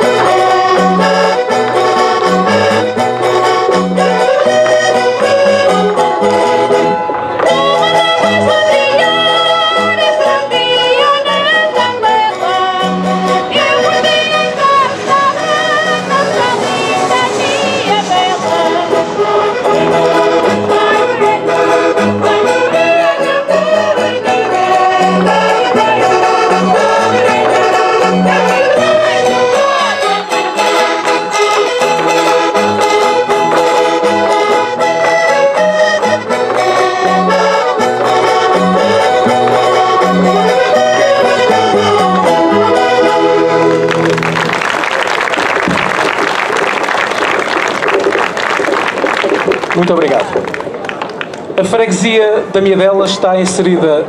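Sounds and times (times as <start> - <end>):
accordion-led folk melody: 0.0 - 50.8
voices singing along: 3.9 - 32.6.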